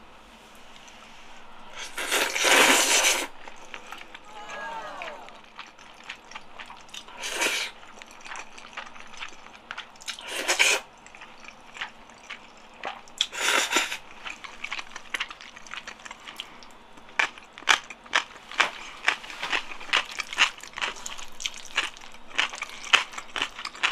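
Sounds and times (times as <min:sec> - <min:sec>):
noodle slurping: 0:01.7 - 0:14.4
wet chewing and mouth clicks: 0:05.2 - 0:23.9.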